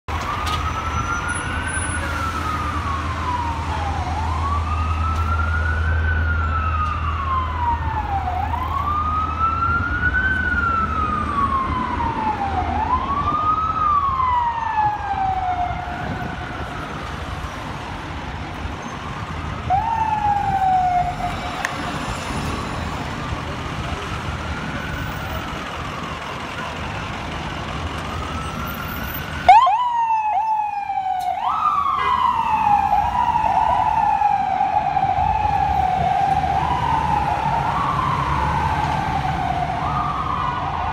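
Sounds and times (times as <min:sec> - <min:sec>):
city traffic: 0:00.0 - 0:40.9
ambulance siren wailing: 0:00.1 - 0:40.9.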